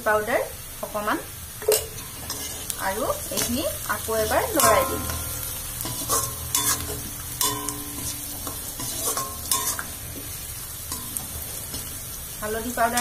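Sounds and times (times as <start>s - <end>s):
onions sizzling in oil: 0.0s - 13.0s
metal spoon scraping metal pan: 1.6s - 10.0s.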